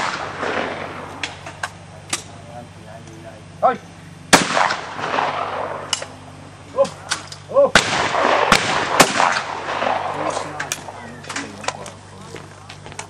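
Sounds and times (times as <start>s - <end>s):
shotgun shots echoing: 0.0s - 1.6s, 4.3s - 6.2s, 7.1s - 11.5s.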